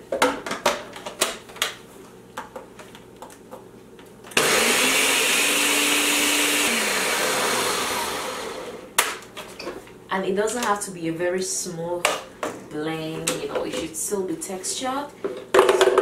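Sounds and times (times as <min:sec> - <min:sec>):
blender motor running: 0:04.4 - 0:08.9.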